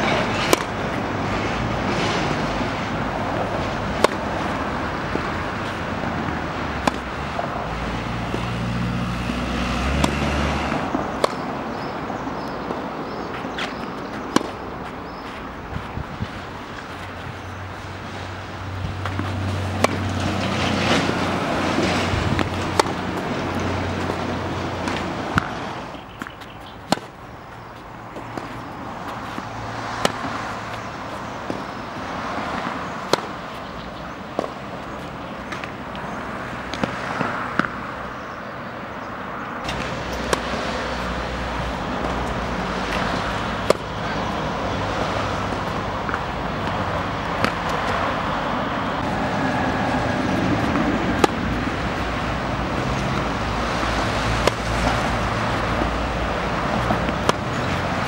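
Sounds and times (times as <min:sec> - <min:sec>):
tennis ball struck with racket: 0:00.0 - 0:01.0, 0:03.3 - 0:06.0, 0:06.8 - 0:17.4, 0:18.8 - 0:31.7, 0:32.6 - 0:33.5, 0:34.3 - 0:35.8, 0:36.7 - 0:37.8, 0:39.6 - 0:48.0, 0:50.3 - 0:53.6, 0:54.4 - 0:58.0.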